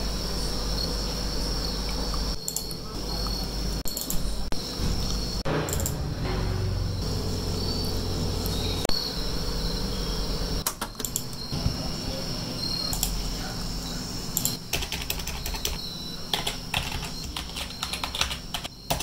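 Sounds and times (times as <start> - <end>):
low hum: 0.0 - 14.6
high-pitched whine: 0.0 - 14.7, 15.3 - 19.0
keyboard typing: 2.1 - 4.3, 10.6 - 11.5, 14.4 - 19.0.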